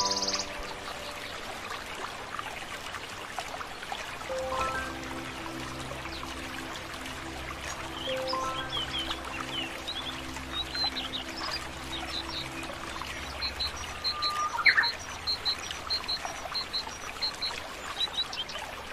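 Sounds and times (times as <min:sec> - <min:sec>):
bird chirps: 0:00.0 - 0:01.2, 0:13.3 - 0:18.6
soft low music notes: 0:00.0 - 0:17.7.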